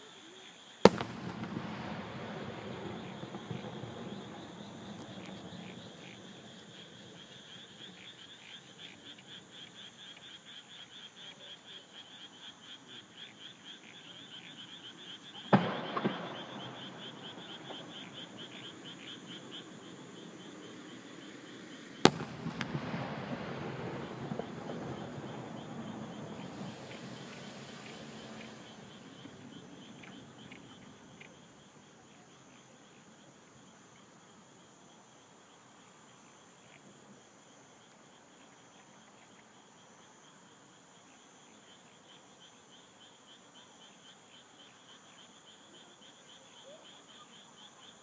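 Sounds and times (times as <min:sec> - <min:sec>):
insects and frogs chorus: 0:00.0 - 0:48.0
fireworks bursting: 0:00.8 - 0:07.2, 0:15.4 - 0:19.4, 0:21.9 - 0:30.9.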